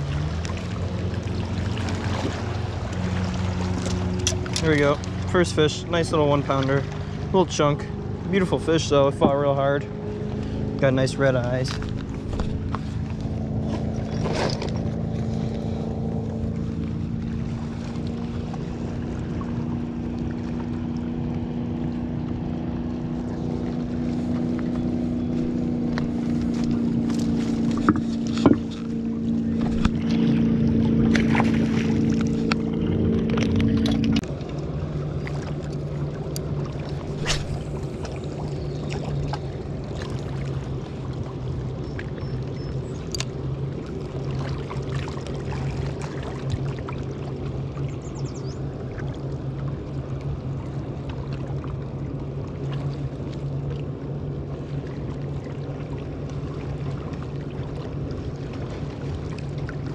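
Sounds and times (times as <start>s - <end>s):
motorboat engine drone: 0.0s - 59.9s
fishing gear clicks and knocks: 11.5s - 13.0s, 13.6s - 15.2s, 24.4s - 30.2s.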